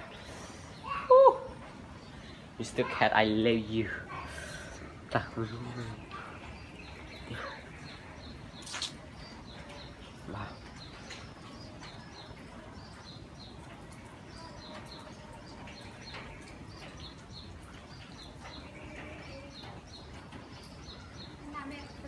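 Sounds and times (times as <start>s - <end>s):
low background noise: 0.0s - 22.0s
small bird chirping: 5.7s - 13.6s.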